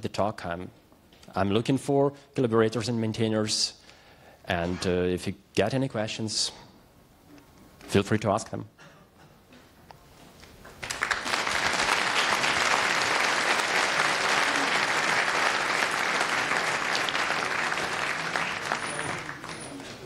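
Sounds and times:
audience applauding: 0:10.8 - 0:20.0.

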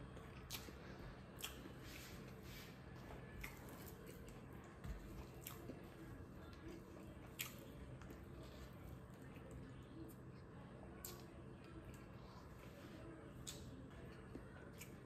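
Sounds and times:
close-up chewing: 0:00.0 - 0:02.4, 0:03.1 - 0:12.7.

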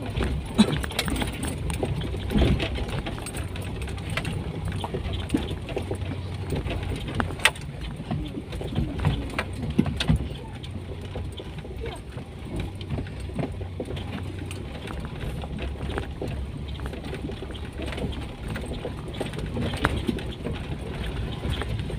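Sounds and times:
car knocks and rattles: 0:00.0 - 0:21.9
low engine and road rumble: 0:00.0 - 0:21.9.

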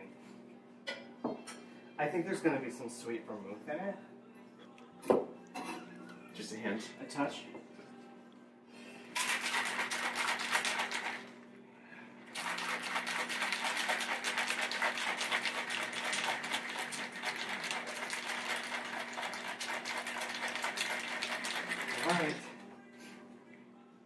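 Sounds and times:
ice rattling in cocktail shaker: 0:09.2 - 0:11.3, 0:12.3 - 0:22.5.

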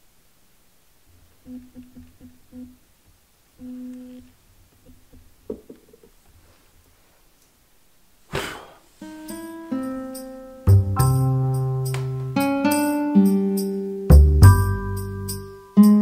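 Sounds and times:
breath blowing out candles: 0:08.3 - 0:08.9
gentle mallet-like music: 0:09.3 - 0:16.0.

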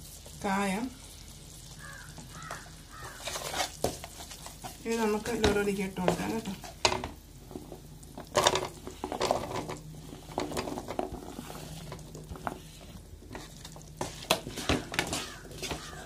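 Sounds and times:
wooden spatula scraping pan: 0:02.4 - 0:16.0.

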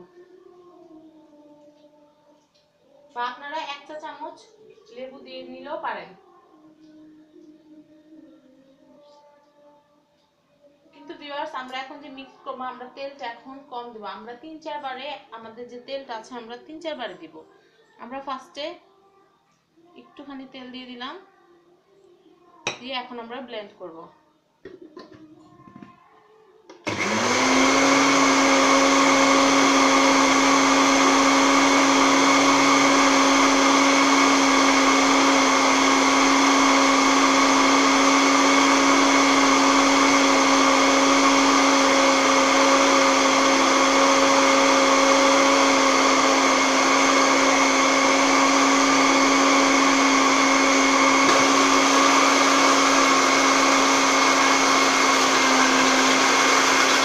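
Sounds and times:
blender motor whine: 0:26.8 - 0:57.0.

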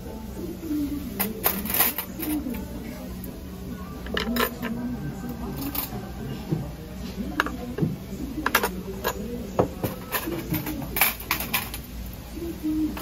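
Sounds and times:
faint voices murmuring: 0:00.0 - 0:13.0
dishes clinking on a table: 0:04.0 - 0:04.8.

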